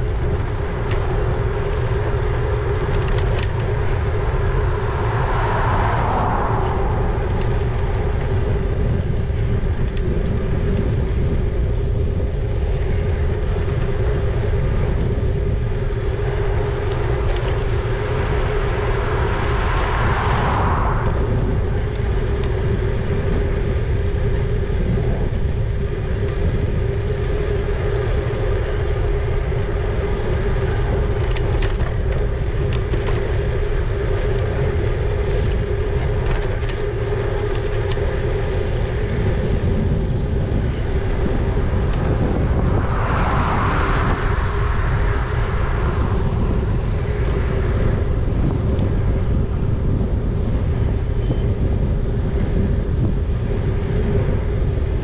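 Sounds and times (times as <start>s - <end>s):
steady e-bike hum: 0.0s - 55.0s
wind rumbling on microphone: 0.0s - 55.0s
vehicle rushing past: 4.0s - 8.6s, 18.6s - 21.8s, 41.8s - 47.1s.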